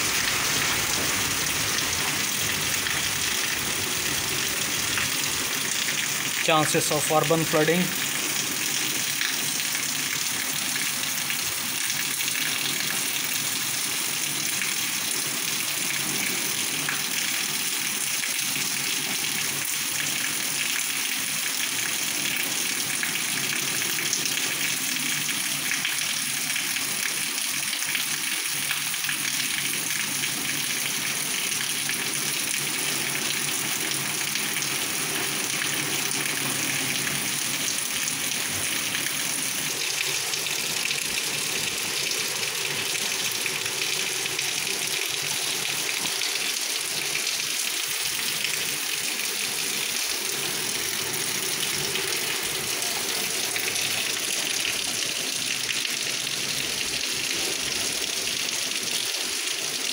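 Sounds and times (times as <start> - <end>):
heavy rain on pavement: 0.0 - 59.9.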